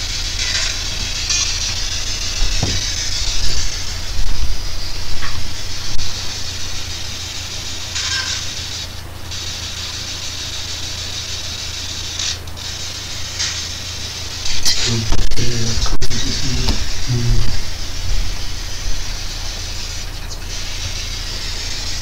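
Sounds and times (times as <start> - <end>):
low electrical hum: 0.0 - 22.0
static hiss: 0.0 - 22.0
low thumps: 0.9 - 6.5, 15.0 - 19.3.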